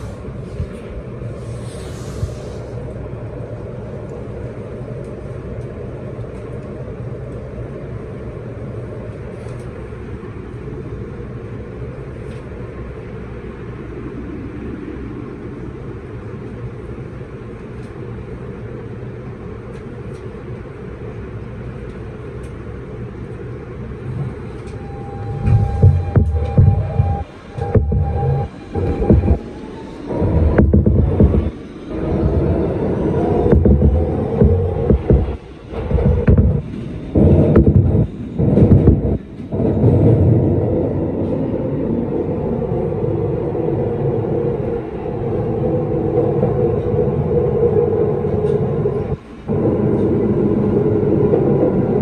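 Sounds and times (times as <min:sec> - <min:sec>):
subway train rumbling in tunnel: 0:00.0 - 0:52.0
train motor whine: 0:24.1 - 0:41.4.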